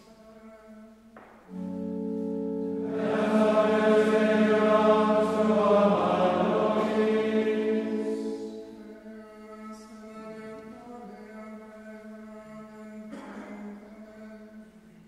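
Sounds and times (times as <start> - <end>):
choir singing plainchant: 2.5 - 9.1.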